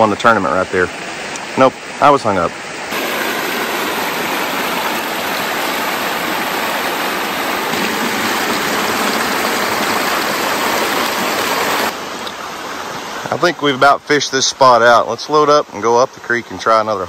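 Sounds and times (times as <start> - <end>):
water pouring over rocks: 2.9 - 12.4.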